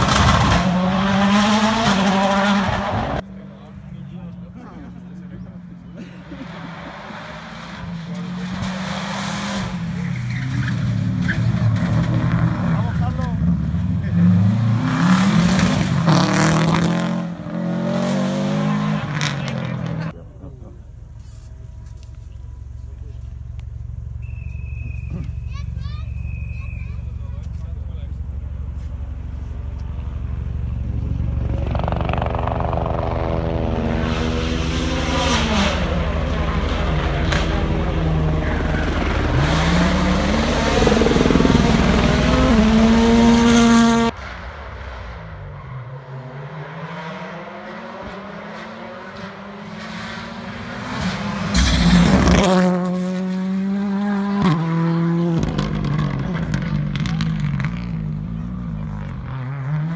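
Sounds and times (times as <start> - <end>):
rally car engine approaching: 0.0 - 59.9.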